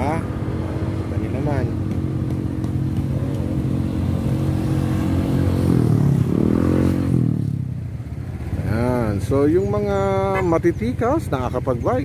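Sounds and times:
vehicle engines running: 0:00.0 - 0:12.0
engine revving past: 0:03.1 - 0:07.8.

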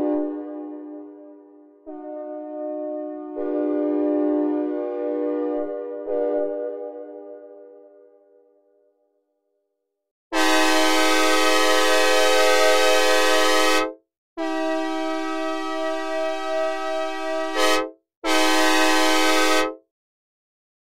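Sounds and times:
locomotive air horn blasts: 0:00.0 - 0:07.1, 0:10.4 - 0:19.8.

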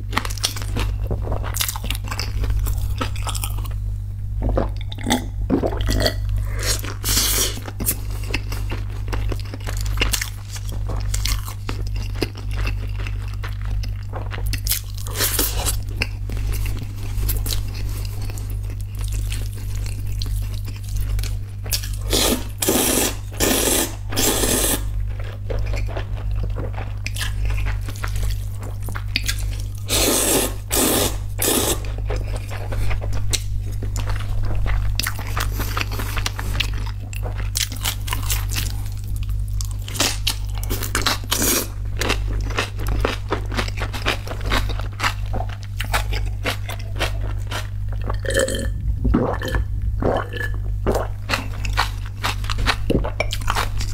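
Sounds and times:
steady low hum: 0:00.0 - 0:53.9
chewing: 0:04.5 - 0:53.9
person slurping noodles: 0:22.1 - 0:24.9, 0:29.9 - 0:31.9, 0:48.2 - 0:51.1.

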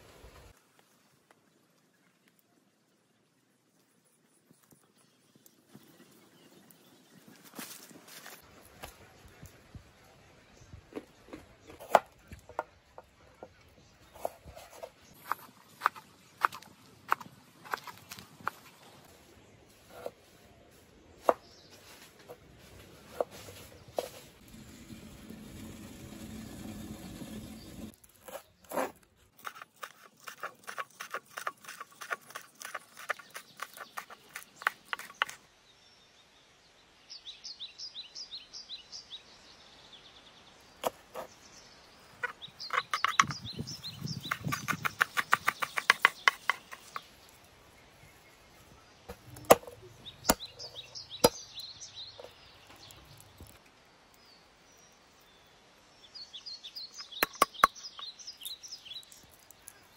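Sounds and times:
birds chirping: 0:37.0 - 0:59.9.

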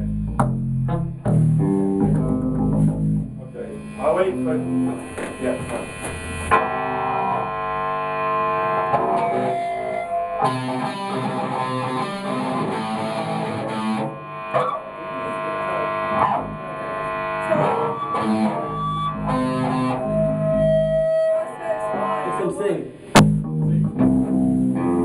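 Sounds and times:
punk rock band playing: 0:08.2 - 0:15.2, 0:17.5 - 0:21.4.

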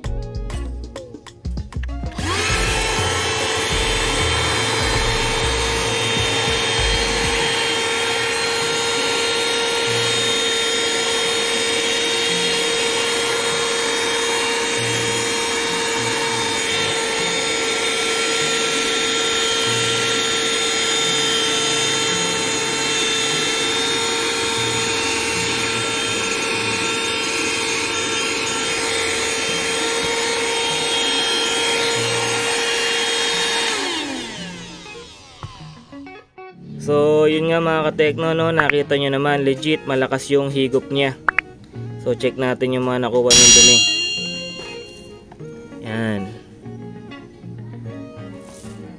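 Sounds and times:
handheld vacuum cleaner whine: 0:02.1 - 0:36.2, 0:43.3 - 0:45.1.

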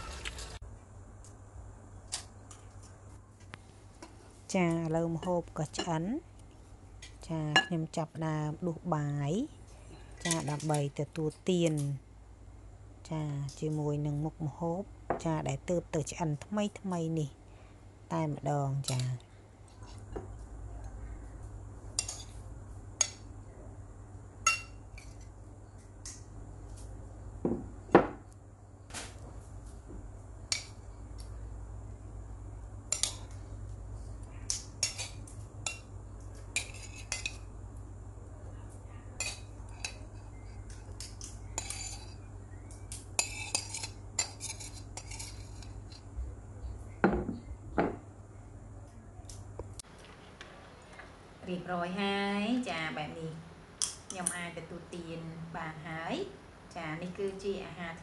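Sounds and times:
spoon clinking on ceramic plate: 0:24.4 - 0:24.8.

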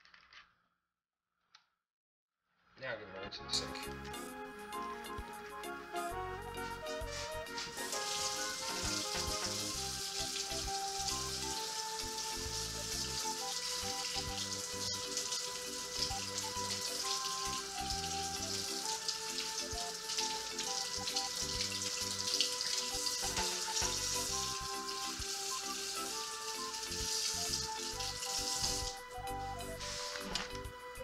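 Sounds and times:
background music with held notes: 0:03.0 - 0:31.0
tap water splashing: 0:06.8 - 0:29.0.

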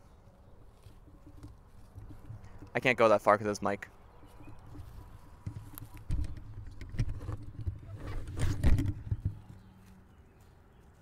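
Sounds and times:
footsteps: 0:03.9 - 0:06.4
microphone handling thumps: 0:04.4 - 0:09.6.

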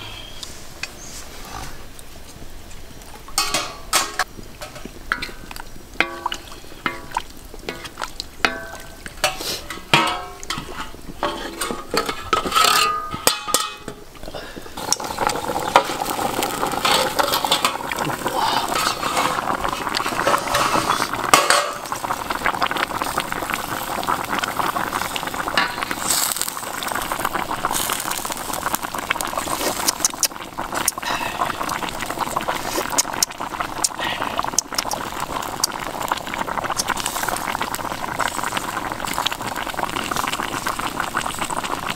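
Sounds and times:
sauce bubbling and crackling: 0:01.7 - 0:12.5, 0:14.1 - 0:41.9
wooden spatula scraping a wok: 0:10.5 - 0:12.9, 0:18.7 - 0:21.2.

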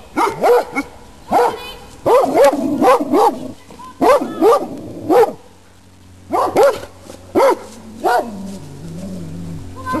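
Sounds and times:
dog barking: 0:00.2 - 0:03.4, 0:04.0 - 0:05.4, 0:06.3 - 0:08.3.

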